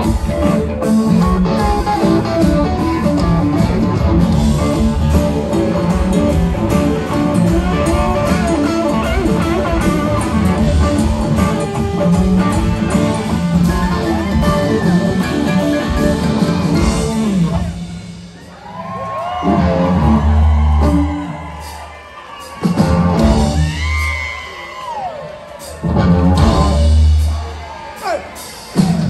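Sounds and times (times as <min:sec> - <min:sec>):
electric guitars: 0:00.0 - 0:21.8
bass: 0:00.0 - 0:29.0
drums: 0:00.0 - 0:29.0.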